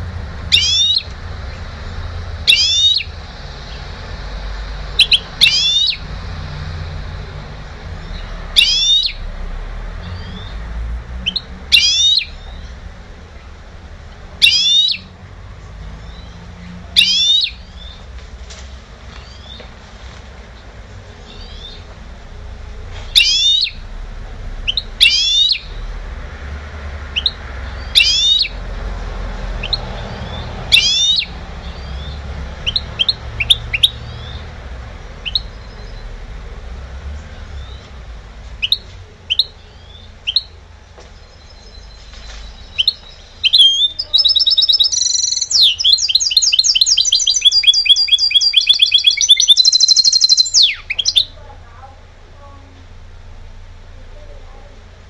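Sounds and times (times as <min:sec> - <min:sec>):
bird call notes: 0:00.0 - 0:03.9, 0:04.9 - 0:06.2, 0:08.0 - 0:09.3, 0:10.0 - 0:12.8, 0:14.4 - 0:15.2, 0:16.0 - 0:18.2, 0:23.1 - 0:23.9, 0:24.6 - 0:25.8, 0:27.1 - 0:28.6, 0:29.6 - 0:34.5, 0:38.6 - 0:51.4
bird trilled song: 0:00.0 - 0:03.9, 0:04.9 - 0:06.2, 0:08.0 - 0:09.2, 0:11.2 - 0:12.8, 0:14.4 - 0:15.1, 0:16.0 - 0:18.1, 0:19.1 - 0:19.7, 0:21.2 - 0:21.9, 0:23.1 - 0:23.8, 0:24.6 - 0:25.9, 0:27.1 - 0:28.6, 0:29.6 - 0:34.6, 0:35.2 - 0:36.3, 0:38.6 - 0:51.4.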